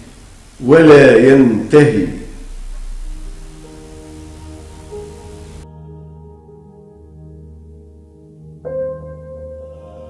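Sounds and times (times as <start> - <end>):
quiet background music: 0.8 - 10.0.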